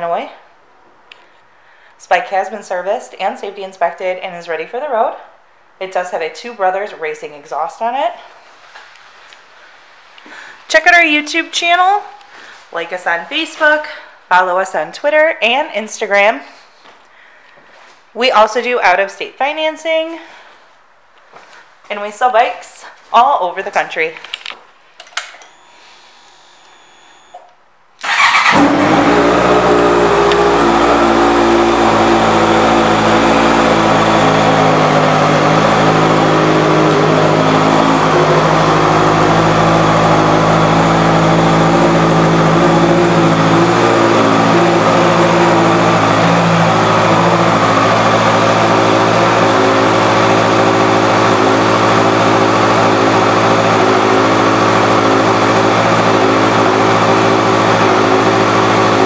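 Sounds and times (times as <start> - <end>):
motorcycle engine idling: 28.0 - 44.4.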